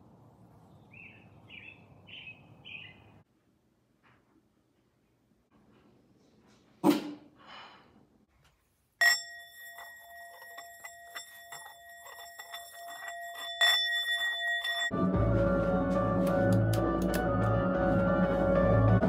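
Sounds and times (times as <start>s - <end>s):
singing bowl struck and ringing: 9.0s - 15.0s
music: 14.9s - 19.0s.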